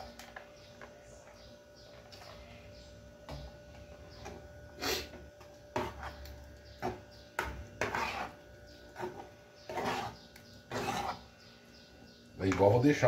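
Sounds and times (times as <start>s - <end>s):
metal spoon scraping saucepan: 5.7s - 11.3s.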